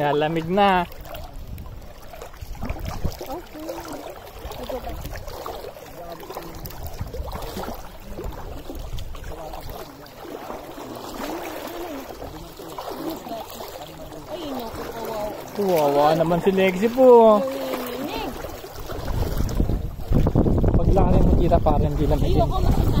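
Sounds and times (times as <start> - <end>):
shallow water lapping: 0.0 - 23.0
faint voices: 3.2 - 18.6.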